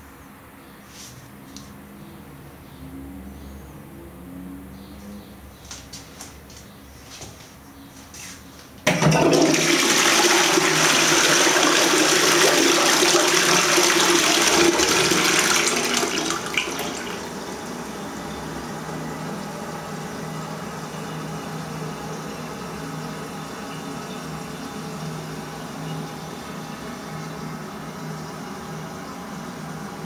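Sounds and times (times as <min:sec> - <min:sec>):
water running: 0:08.9 - 0:27.0
toilet flushing: 0:08.9 - 0:29.4.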